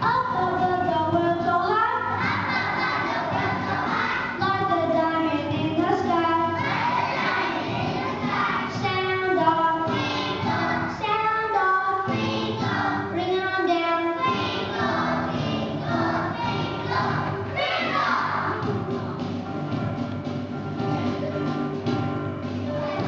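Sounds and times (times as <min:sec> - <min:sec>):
children singing together: 0:01.8 - 0:19.2, 0:22.6 - 0:23.0.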